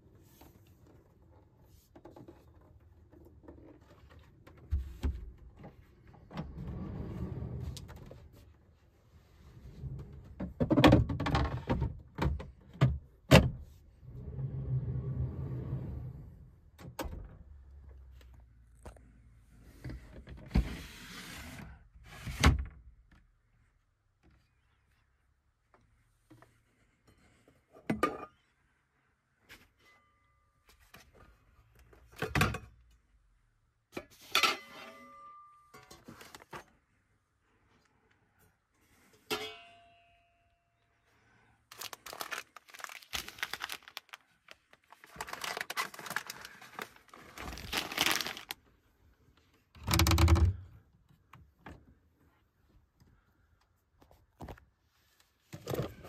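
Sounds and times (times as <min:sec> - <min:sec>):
knocks clatters and thunks: 0:10.3 - 0:13.6, 0:49.8 - 0:50.7.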